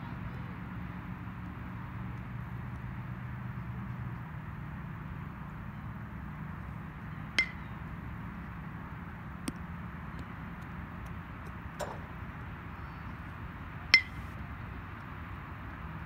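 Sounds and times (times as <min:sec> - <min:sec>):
metal bat pinging on ball: 0:07.4 - 0:07.7, 0:11.8 - 0:12.5, 0:13.9 - 0:14.2
faint knocks: 0:11.8 - 0:12.3.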